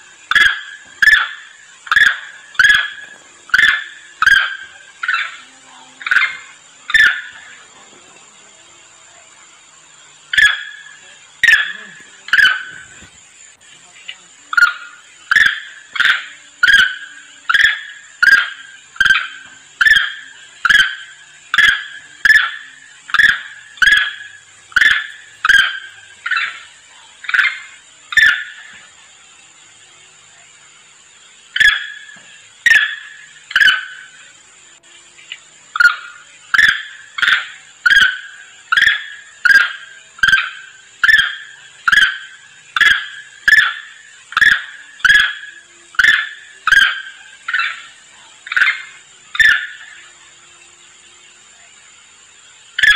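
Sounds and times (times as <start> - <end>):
monkey sharp cry: 0.3 - 7.6, 10.3 - 13.2, 14.5 - 28.7.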